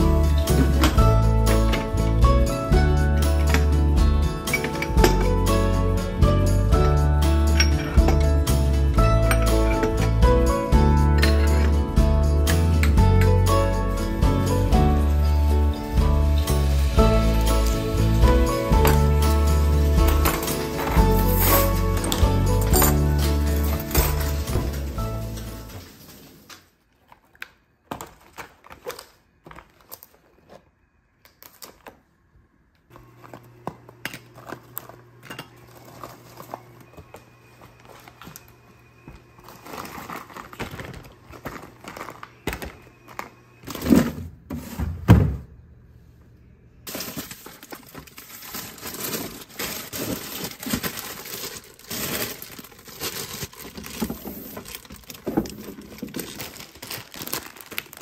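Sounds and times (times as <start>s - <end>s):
plastic packaging crinkling: 18.8s - 32.0s, 33.1s - 38.6s, 39.2s - 43.8s, 46.8s - 58.0s.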